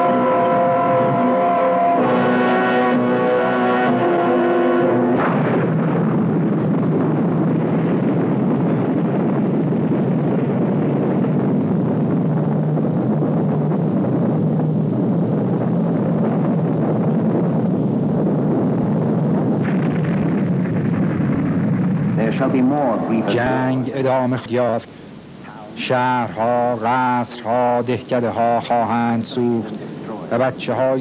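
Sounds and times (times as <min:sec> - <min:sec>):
film soundtrack music: 0:00.0 - 0:05.8
explosion roaring rumble: 0:00.0 - 0:26.9.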